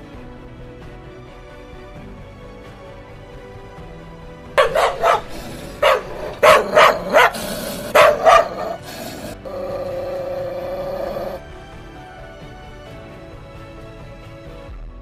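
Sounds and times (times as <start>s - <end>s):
background music: 0.0s - 15.0s
dog barking: 4.6s - 10.0s.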